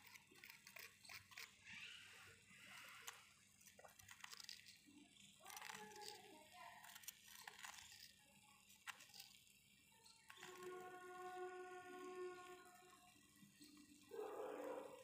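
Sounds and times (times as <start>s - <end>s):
background music with held tones: 10.3s - 14.1s.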